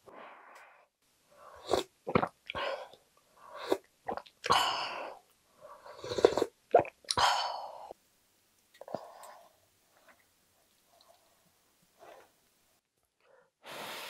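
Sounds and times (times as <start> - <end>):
slurping broth: 5.8 - 6.9.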